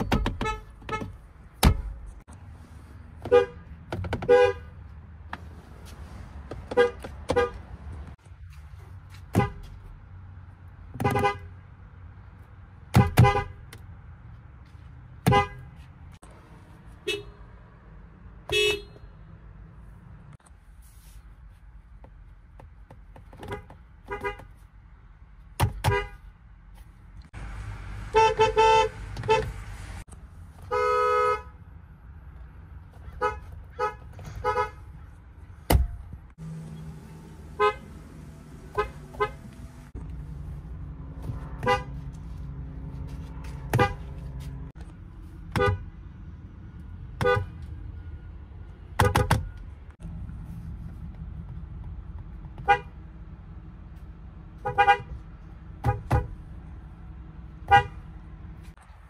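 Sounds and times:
car horns beeping: 0.0 - 2.0, 3.2 - 4.8, 6.6 - 7.7, 9.3 - 9.8, 11.0 - 11.6, 12.9 - 13.8, 15.2 - 15.8, 17.0 - 17.5, 18.4 - 19.3, 23.4 - 24.6, 25.6 - 26.3, 28.0 - 29.9, 30.6 - 31.6, 33.0 - 35.0, 35.7 - 40.0, 41.4 - 42.2, 43.3 - 44.4, 45.5 - 46.0, 47.1 - 49.8, 52.6 - 53.0, 54.6 - 55.2, 55.8 - 56.4, 57.6 - 58.1.

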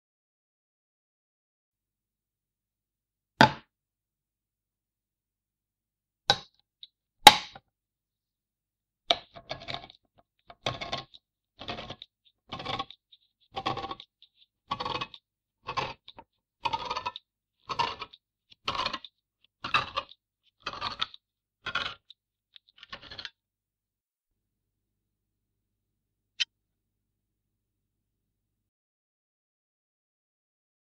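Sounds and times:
tin opener cutting metal strokes: 10.6 - 13.0, 13.6 - 14.1, 14.7 - 22.1.

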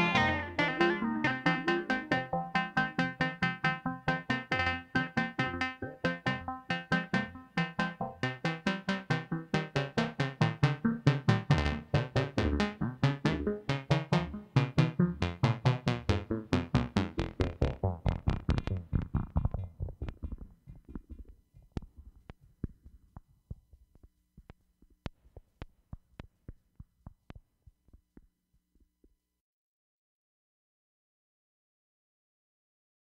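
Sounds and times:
sequenced synthesizer notes: 0.0 - 22.1.

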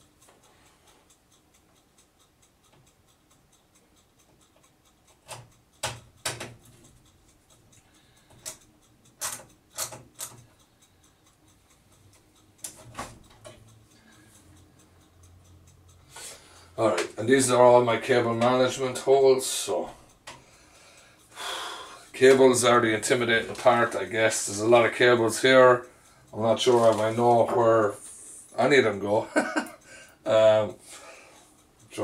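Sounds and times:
screwdriver clicks and taps: 5.2 - 6.7, 9.2 - 10.4.

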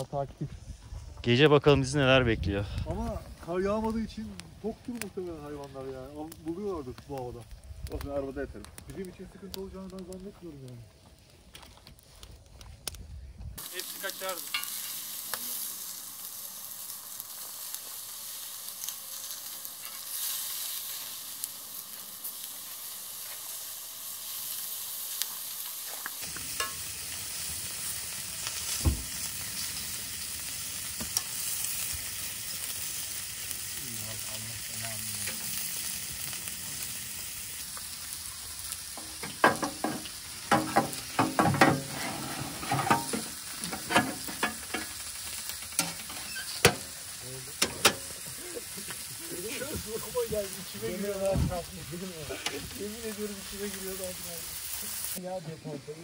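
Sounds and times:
food sizzling in a pan: 13.6 - 56.0.

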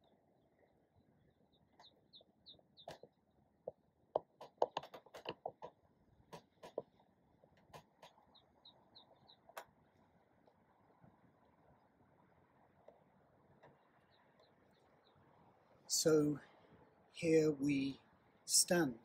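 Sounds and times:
bird chirping: 0.0 - 5.7, 7.7 - 10.6, 13.5 - 16.6
sharp clicks and taps: 2.8 - 6.9.

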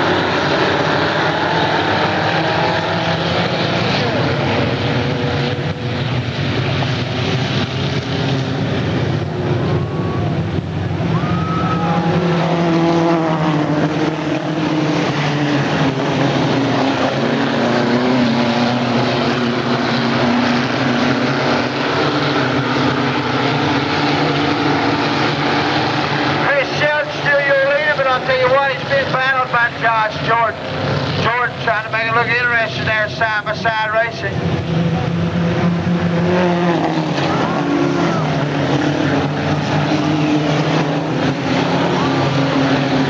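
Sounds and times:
race car engines running hard: 0.0 - 43.0.

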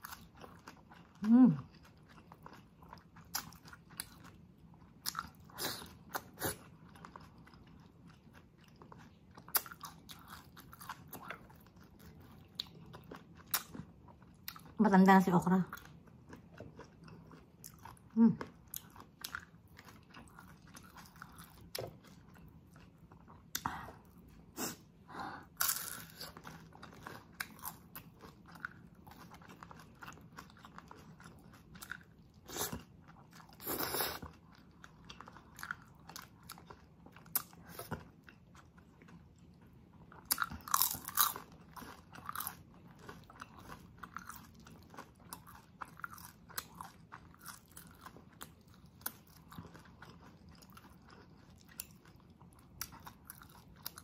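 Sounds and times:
chewing and crunching food: 0.0 - 54.0.

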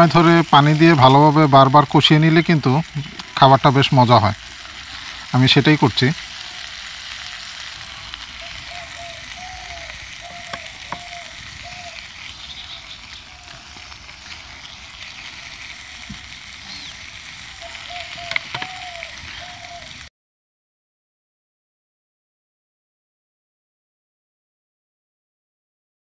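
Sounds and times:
masala sizzling in a pan: 0.0 - 20.1.

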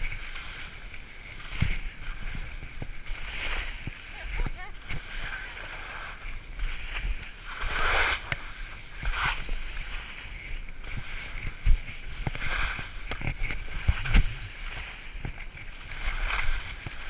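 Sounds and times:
skis swishing through snow: 0.0 - 17.0.

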